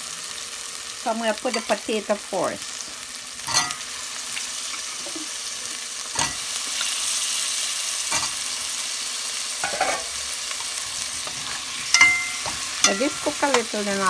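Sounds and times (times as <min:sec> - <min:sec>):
frying in hot oil sizzling: 0:00.0 - 0:14.0
spoon knocking on pot: 0:11.9 - 0:13.7.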